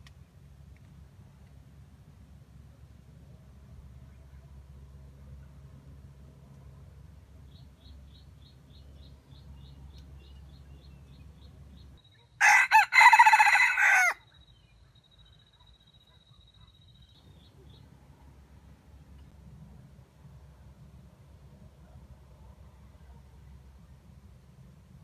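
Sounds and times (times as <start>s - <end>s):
rooster crowing: 12.4s - 14.2s.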